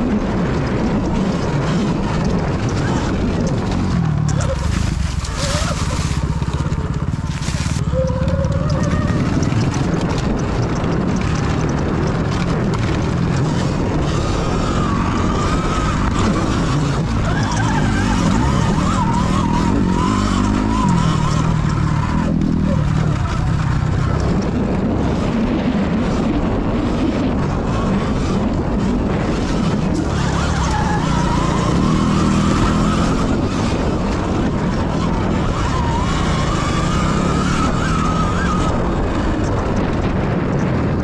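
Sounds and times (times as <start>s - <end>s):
tyre noise on dirt: 0.0s - 41.0s.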